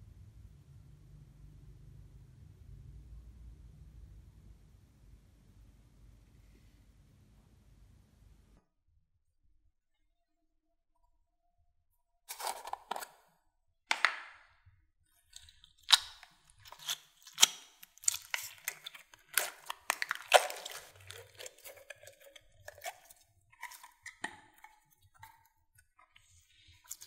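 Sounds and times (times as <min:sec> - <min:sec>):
slime crackling and popping: 0:15.3 - 0:24.0.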